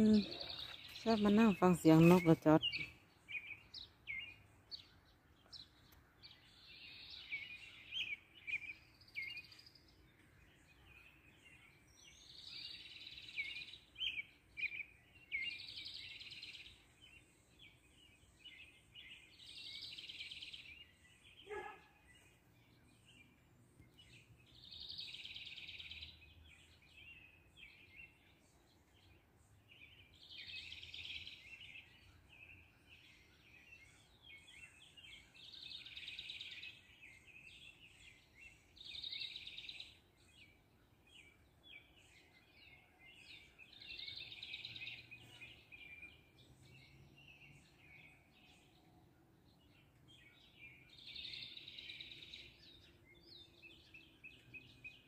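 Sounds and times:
sparrows chirping: 0.0 - 55.0.

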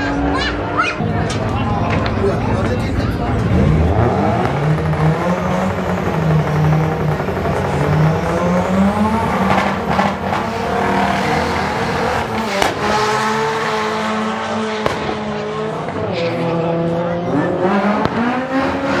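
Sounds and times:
drag car engine revving: 0.0 - 19.0
sharp cracks: 14.8 - 15.4.

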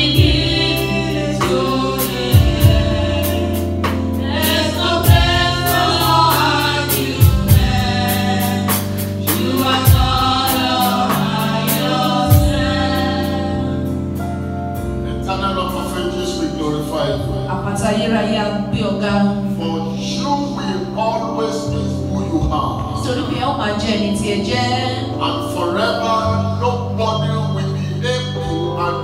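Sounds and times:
slow drum beat: 0.0 - 14.3
choir singing: 0.0 - 14.4
sustained low bass notes: 0.0 - 29.0.

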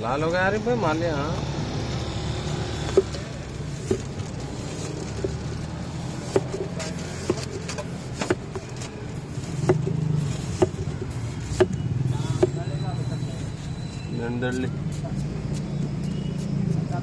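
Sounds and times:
low rumble of street traffic: 0.0 - 17.0
knife chopping watermelon: 6.1 - 12.6.

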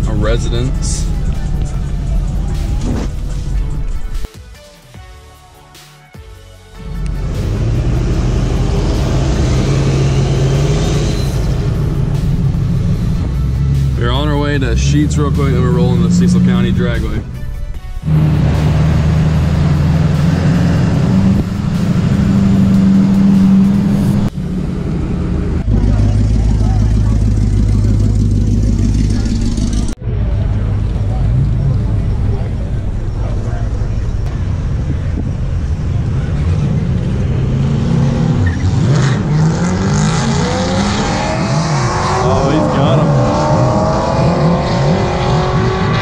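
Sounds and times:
truck engine droning from inside cab: 0.0 - 4.3, 6.9 - 38.6
vehicle accelerating hard: 6.9 - 17.4, 18.0 - 46.0.

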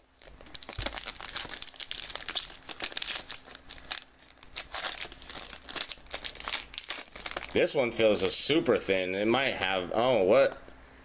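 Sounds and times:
foil wrapper crinkling: 0.0 - 7.8.

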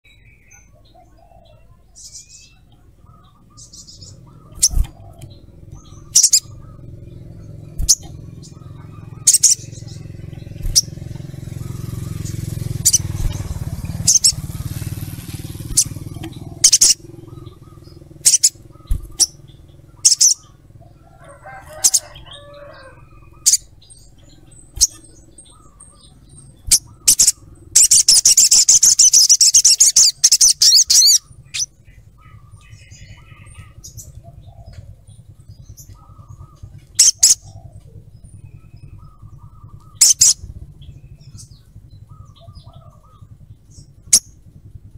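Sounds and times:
bird chattering trill: 0.2 - 44.9
bird giving sharp high calls: 0.3 - 44.5
low hum: 2.5 - 44.9.

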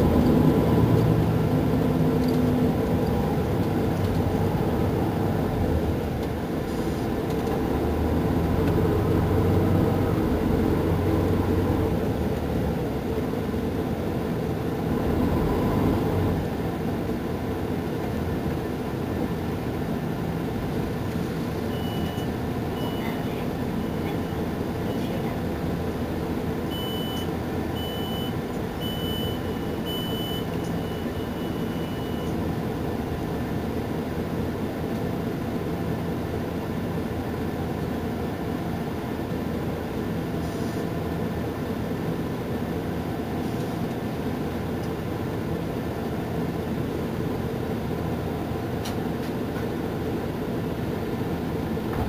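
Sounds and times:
diesel bus engine idling: 0.0 - 52.0
short high beeps: 21.7 - 23.2, 26.7 - 32.4.

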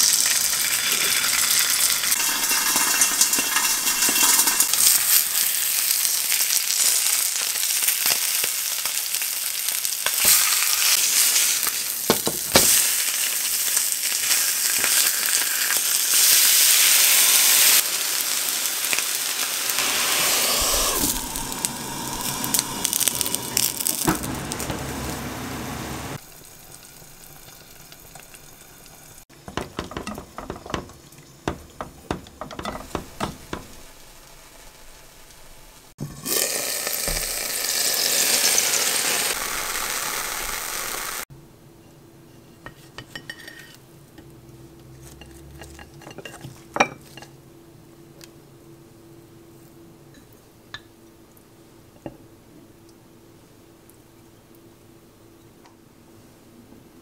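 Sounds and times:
food sizzling in hot oil: 0.0 - 41.3.

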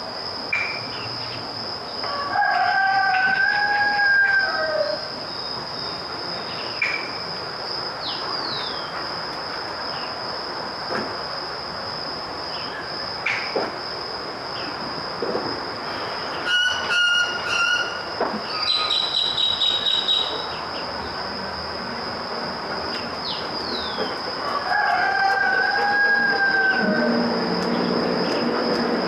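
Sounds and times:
bird chirps: 18.5 - 20.8
high-pitched whine: 25.8 - 29.0.

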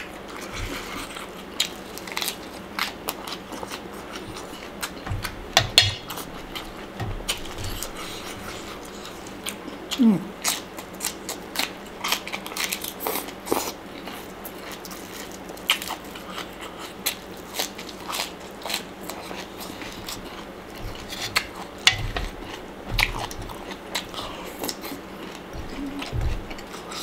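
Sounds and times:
crunching raw vegetables: 0.0 - 27.0
dull low thumps: 4.3 - 8.9, 20.2 - 24.3, 25.5 - 26.8.

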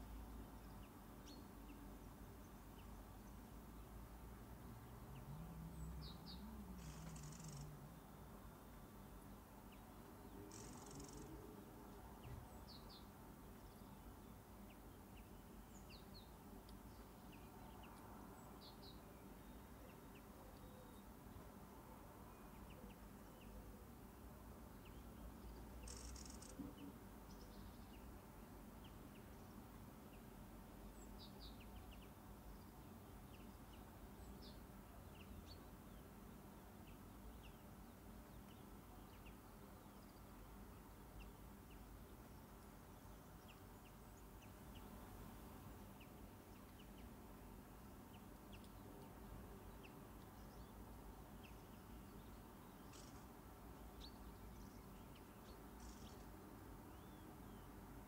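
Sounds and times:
faint high chirps: 6.2 - 8.4, 10.4 - 11.5, 25.8 - 26.7.

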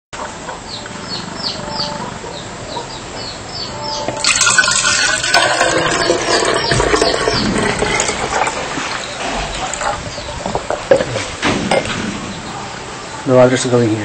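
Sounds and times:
water pouring into plastic bottle: 4.2 - 9.0.

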